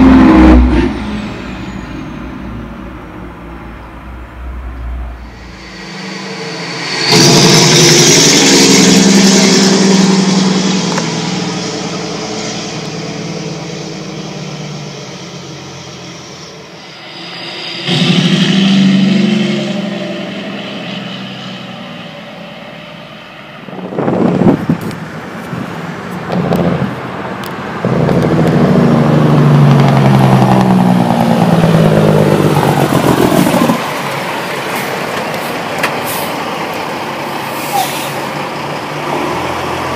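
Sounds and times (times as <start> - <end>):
truck engine brakes blatting: 33.8 - 36.8.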